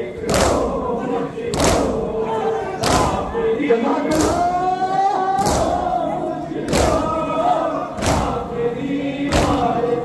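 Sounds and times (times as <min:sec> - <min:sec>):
men chanting together: 0:00.0 - 0:10.0
hands striking chests in unison: 0:00.3 - 0:00.7, 0:01.5 - 0:02.0, 0:02.8 - 0:03.2, 0:05.4 - 0:05.8, 0:06.7 - 0:07.1, 0:08.0 - 0:08.4, 0:09.3 - 0:09.7.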